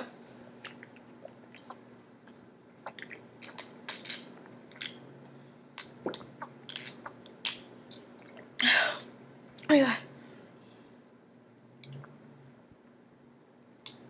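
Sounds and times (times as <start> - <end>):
person gulping a drink: 0.6 - 5.0, 5.8 - 8.6
wet swallowing and mouth clicks: 0.6 - 5.0, 5.8 - 8.5.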